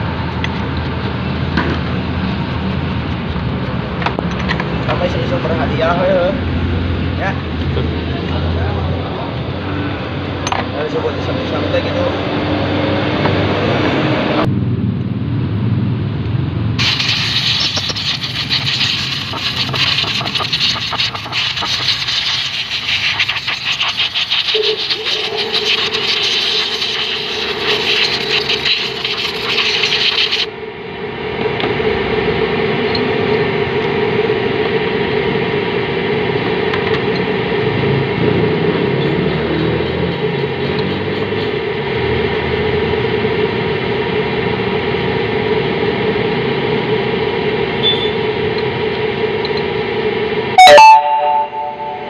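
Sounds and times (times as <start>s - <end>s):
stiff brush scrubbing metal parts: 1.8s - 4.9s, 16.8s - 30.5s.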